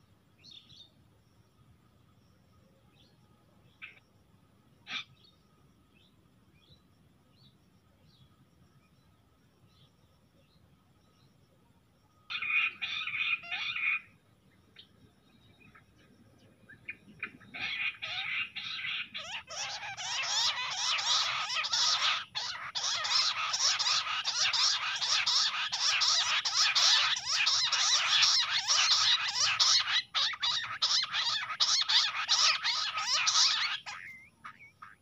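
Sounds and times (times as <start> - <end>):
quails chirping chorus: 12.3 - 14.2, 15.6 - 35.0.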